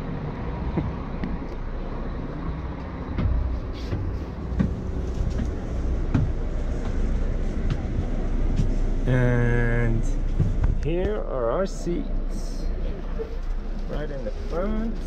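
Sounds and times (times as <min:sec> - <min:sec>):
coach engine rumbling: 0:00.0 - 0:15.0
knocks and clicks inside: 0:02.8 - 0:07.0, 0:10.3 - 0:11.2.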